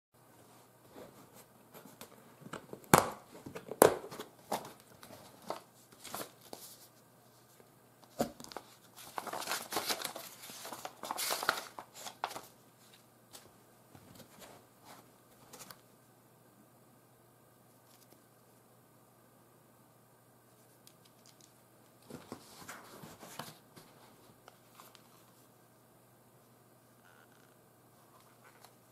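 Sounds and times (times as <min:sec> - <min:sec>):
paper rustling and crinkling: 0:03.4 - 0:15.8, 0:20.6 - 0:25.5, 0:28.2 - 0:28.9.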